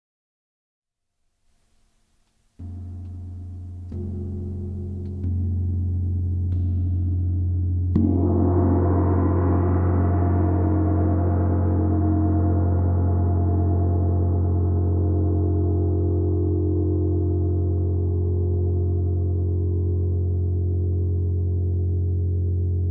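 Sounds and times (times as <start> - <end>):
gong ringing: 2.6 - 13.2
gong struck with mallet: 2.6 - 14.3.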